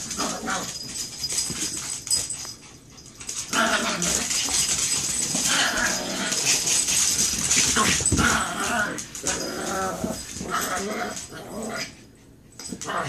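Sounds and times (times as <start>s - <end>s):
dogs scuffling: 0.0s - 13.0s
small dogs growling: 3.5s - 4.6s, 5.4s - 6.7s, 7.6s - 12.0s.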